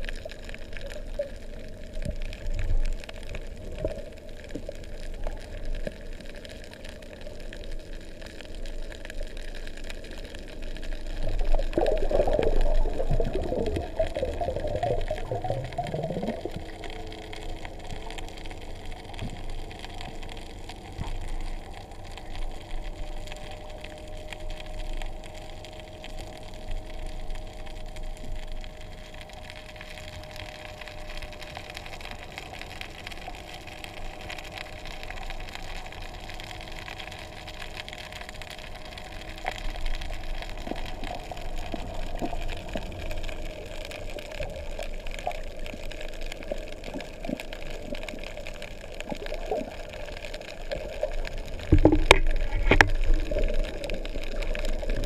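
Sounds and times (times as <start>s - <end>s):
faint steady hum: 0.0s - 55.0s
muffled underwater water rush: 0.0s - 55.0s
fine crackling: 26.2s - 55.0s.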